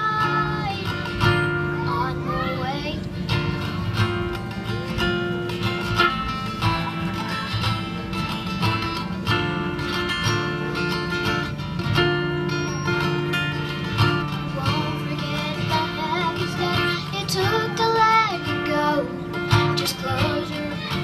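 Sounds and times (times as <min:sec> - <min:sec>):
girl singing: 0:00.0 - 0:03.8, 0:13.9 - 0:21.0
acoustic guitar strumming: 0:00.0 - 0:21.0.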